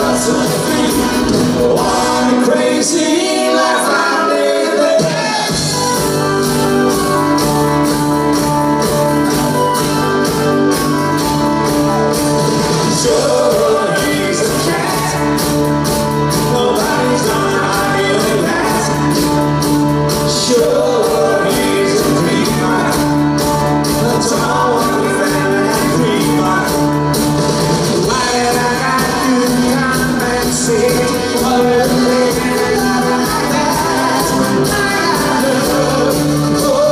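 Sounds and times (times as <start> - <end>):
man singing lead: 0.0 - 6.0, 12.9 - 27.2, 28.0 - 36.9
live band playing: 0.0 - 36.9.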